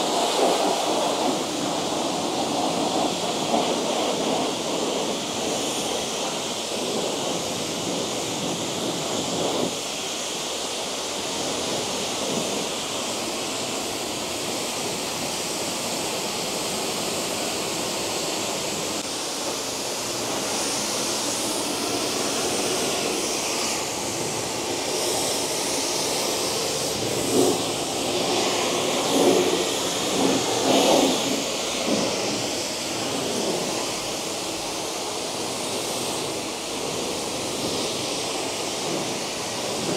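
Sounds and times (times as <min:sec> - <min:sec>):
pressure washer spray hissing: 0:00.0 - 0:39.9.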